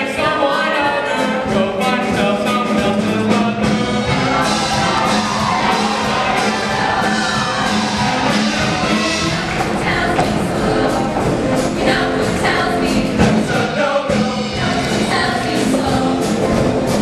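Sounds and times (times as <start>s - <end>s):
brass: 0.0s - 17.0s
choir singing pop song: 0.0s - 17.0s
drums: 0.0s - 17.0s.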